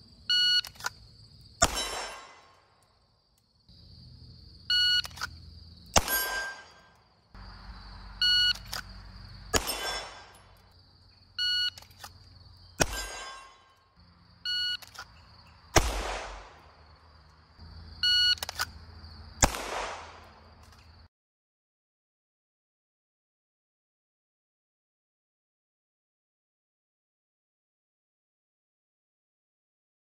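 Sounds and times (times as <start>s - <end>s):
pistol shots: 1.6s - 2.7s, 5.9s - 7.0s, 8.5s - 10.7s, 12.8s - 13.6s, 15.7s - 16.8s, 19.4s - 20.5s
shot timer beeps: 4.7s - 5.2s, 8.2s - 8.7s, 11.4s - 11.8s
steel target ringing: 6.0s - 7.0s, 9.5s - 10.6s, 12.8s - 13.8s.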